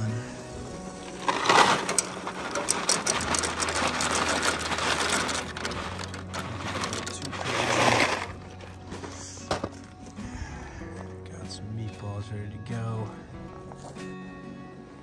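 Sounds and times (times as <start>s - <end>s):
dry pasta rattling in a box: 1.0s - 9.2s.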